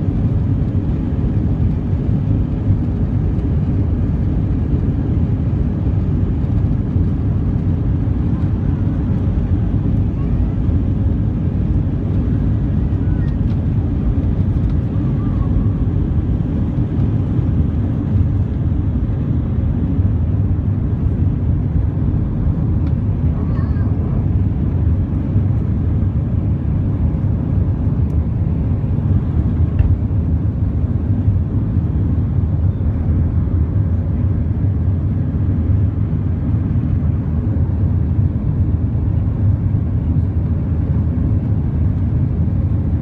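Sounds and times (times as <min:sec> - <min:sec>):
jet engines rumbling in cabin: 0:00.0 - 0:43.0.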